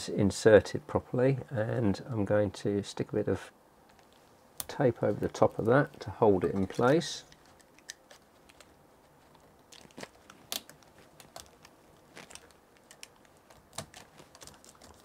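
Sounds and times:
tape crinkling and rustling: 0:03.9 - 0:15.0.

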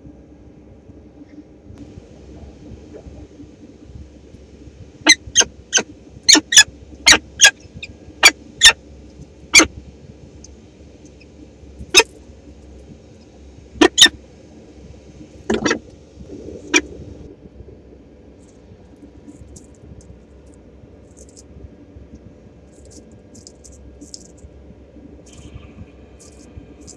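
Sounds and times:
falcon chip calls: 0:05.0 - 0:08.8, 0:13.8 - 0:14.2.

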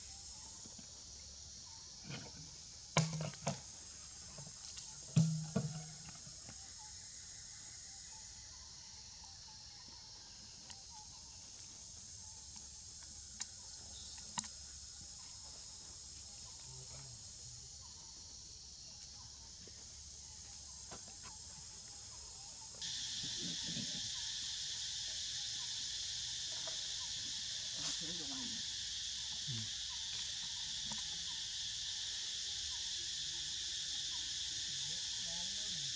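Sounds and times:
insects buzzing: 0:00.0 - 0:35.9.

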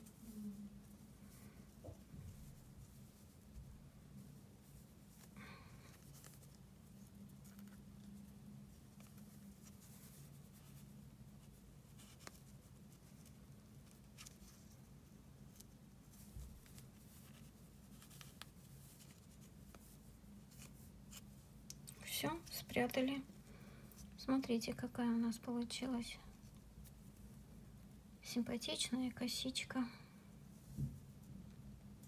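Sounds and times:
yarn rustling: 0:00.0 - 0:24.1
low steady hum: 0:00.0 - 0:32.0.

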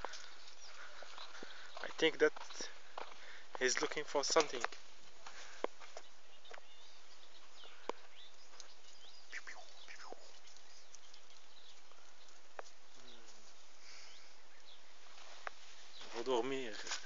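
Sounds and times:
outdoor background hiss: 0:00.0 - 0:17.0
faint falling bird calls: 0:05.4 - 0:17.0.

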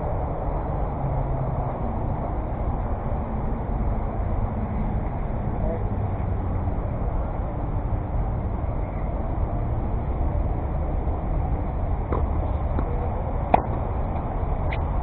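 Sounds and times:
racket hitting ball: 0:12.1 - 0:14.8
distant tennis ball knocks: 0:13.5 - 0:13.8.

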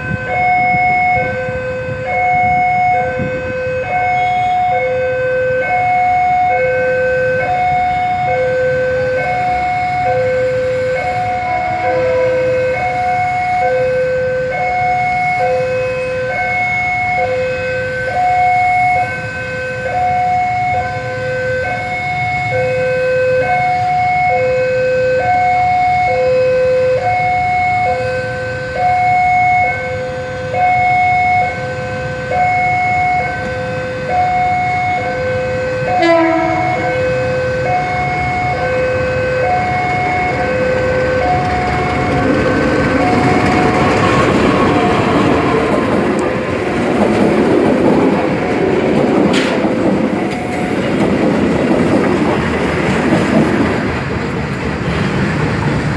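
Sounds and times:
train horn blast: 0:00.0 - 0:25.4, 0:27.8 - 0:41.4
level crossing alarm: 0:00.0 - 0:49.4
train rumble: 0:00.0 - 0:55.9.

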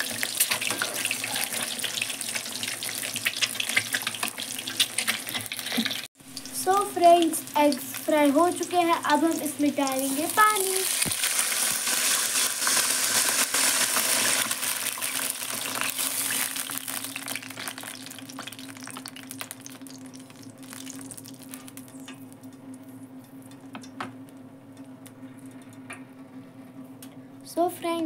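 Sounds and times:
hot oil sizzling and spitting: 0:00.0 - 0:22.2
low hum: 0:13.0 - 0:27.7.

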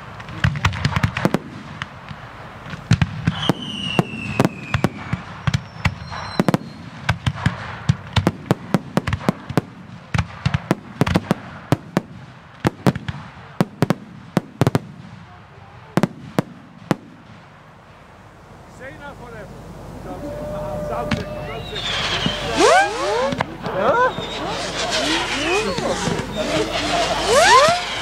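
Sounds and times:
fireworks bangs: 0:00.0 - 0:28.0
falling firework whistle: 0:03.2 - 0:07.1, 0:20.0 - 0:28.0.

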